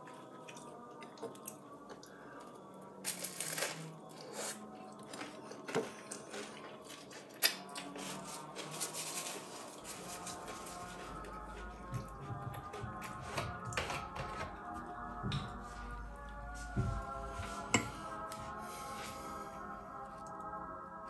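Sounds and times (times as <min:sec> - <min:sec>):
person chewing: 0:03.1 - 0:08.5.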